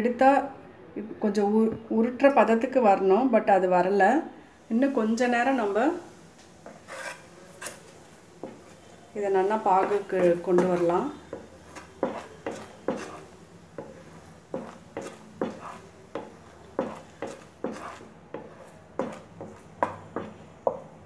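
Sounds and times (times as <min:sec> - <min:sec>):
spatula scraping a frying pan: 0:06.6 - 0:20.8.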